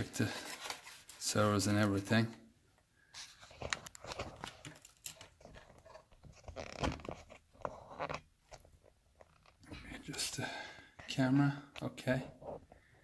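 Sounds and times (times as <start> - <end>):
foam and plastic parts crackling: 0.0 - 2.0, 3.2 - 8.6.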